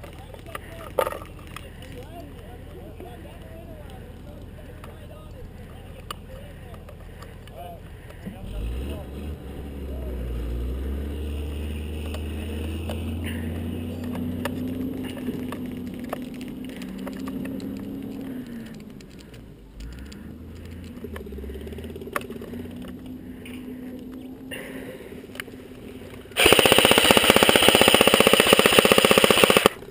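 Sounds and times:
truck engine rumbling: 0:00.0 - 0:29.9
sharp clicks: 0:14.0 - 0:24.2, 0:26.1 - 0:29.9.

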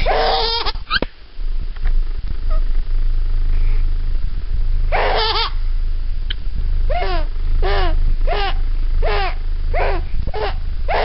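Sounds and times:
baby giggling: 0:00.0 - 0:01.0, 0:05.0 - 0:05.6, 0:06.9 - 0:11.0
low rumble: 0:01.2 - 0:11.0.

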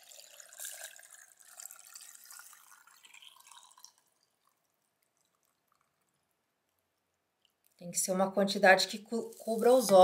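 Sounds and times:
liquid trickling into a jar: 0:00.0 - 0:07.7.

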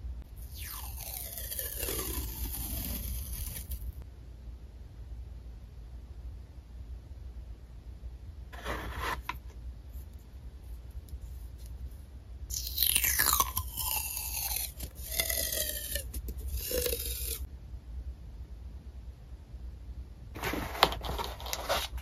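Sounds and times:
tape ripping off roll: 0:00.6 - 0:03.8
handling rustle: 0:20.4 - 0:22.0.

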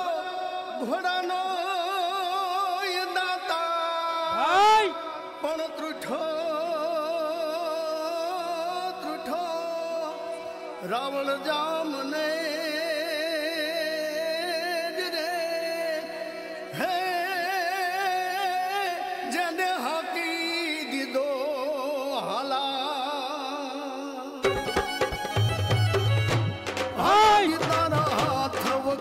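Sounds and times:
rhythmic percussion: 0:24.4 - 0:29.0.

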